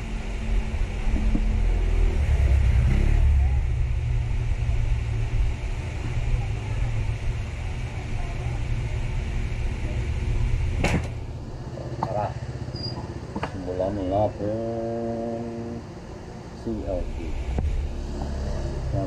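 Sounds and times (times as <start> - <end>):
low rumble: 0.0 - 11.8, 16.2 - 19.0.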